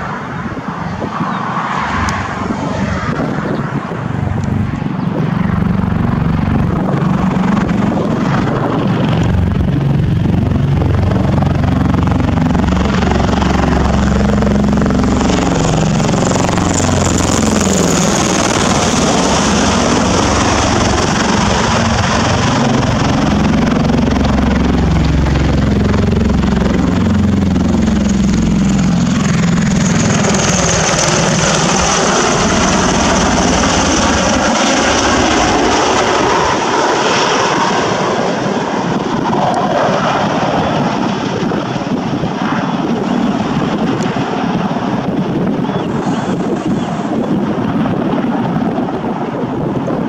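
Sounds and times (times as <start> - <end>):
turbine engine whine: 0.0 - 50.0
deep heavy rotor beat: 5.5 - 36.5.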